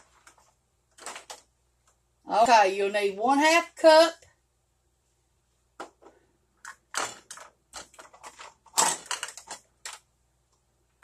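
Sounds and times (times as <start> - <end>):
plastic measuring cups clattering: 0.0 - 1.5, 5.8 - 10.1.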